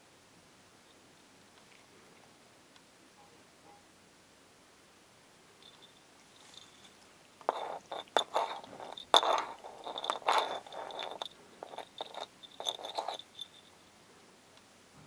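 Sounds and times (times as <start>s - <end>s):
jingle bell clinking: 5.6s - 13.8s.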